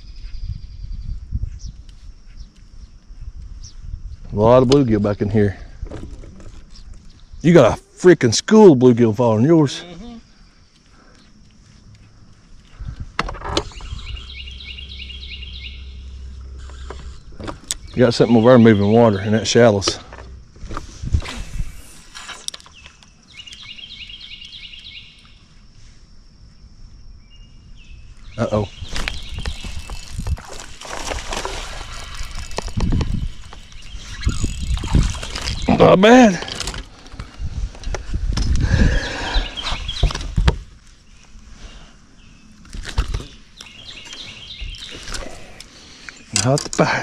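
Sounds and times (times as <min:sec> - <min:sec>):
faint high whine: 0:13.5 - 0:24.0
bird chirping: 0:13.6 - 0:20.4, 0:22.2 - 0:25.5, 0:27.0 - 0:30.4, 0:31.9 - 0:36.2, 0:38.6 - 0:40.4, 0:41.0 - 0:46.6.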